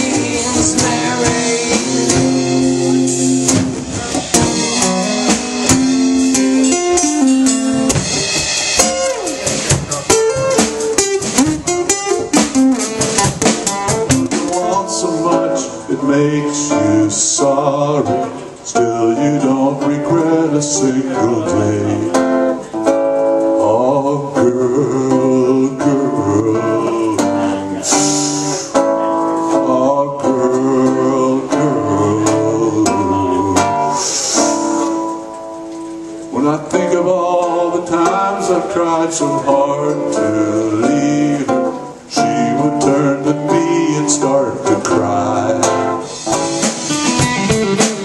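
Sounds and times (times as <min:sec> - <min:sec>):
man singing into microphone: 0:00.0 - 0:05.8, 0:14.3 - 0:22.8, 0:23.5 - 0:35.2, 0:36.3 - 0:46.5
acoustic guitar strumming: 0:00.0 - 0:48.0.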